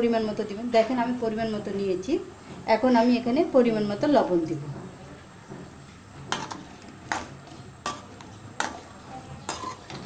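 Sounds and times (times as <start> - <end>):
spoon clinking against metal pot: 9.5 - 10.0.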